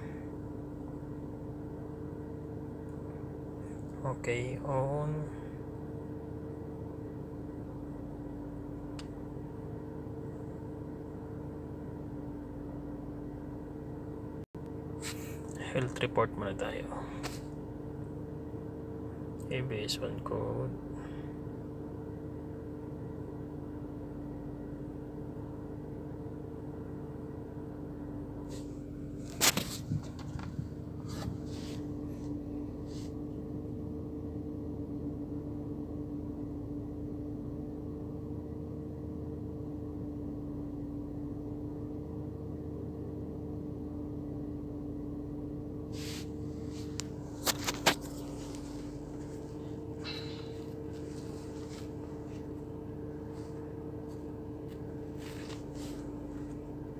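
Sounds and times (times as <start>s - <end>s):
two-tone mechanical hum: 0.0s - 56.9s.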